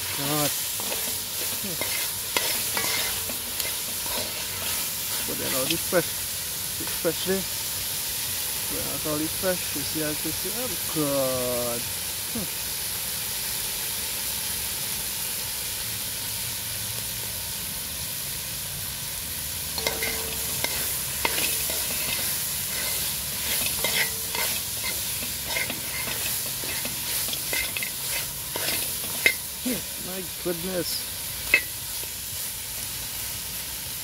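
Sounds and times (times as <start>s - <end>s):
food sizzling in a pot: 0.0s - 34.0s
spoon scraping a metal pot: 0.8s - 4.8s, 19.8s - 29.4s.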